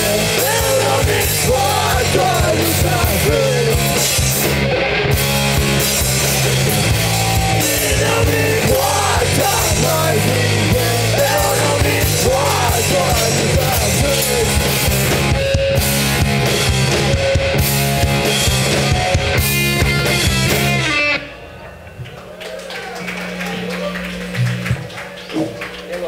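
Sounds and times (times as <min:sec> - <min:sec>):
drum kit with crashing cymbals: 0:00.0 - 0:21.0
bass guitar: 0:00.0 - 0:26.0
electric guitars: 0:00.0 - 0:26.0.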